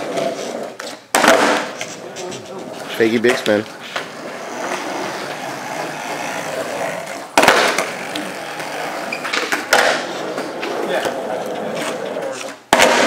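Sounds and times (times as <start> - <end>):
skateboard clatter: 0.0 - 13.0
skateboard wheels rolling: 0.0 - 13.0
skateboard pop and landing clack: 1.1 - 1.8, 7.3 - 7.9, 9.2 - 10.1, 12.6 - 13.0.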